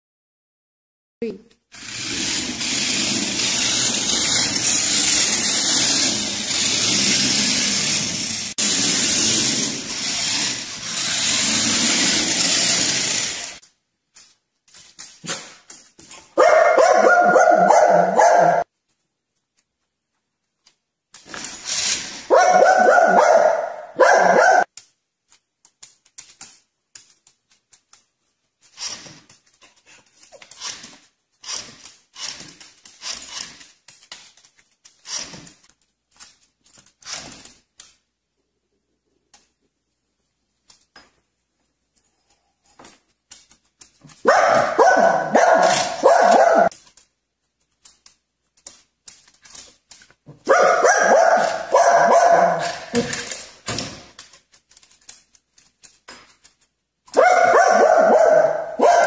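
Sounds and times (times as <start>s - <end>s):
dog barking: 16.4s - 18.6s, 22.3s - 24.7s, 44.2s - 46.7s, 50.4s - 53.1s, 57.1s - 59.0s.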